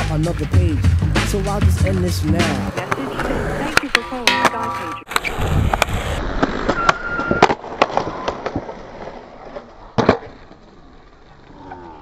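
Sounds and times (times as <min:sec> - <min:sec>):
skateboard wheels rolling on concrete: 0:00.0 - 0:12.0
skateboard clacks: 0:02.5 - 0:11.4.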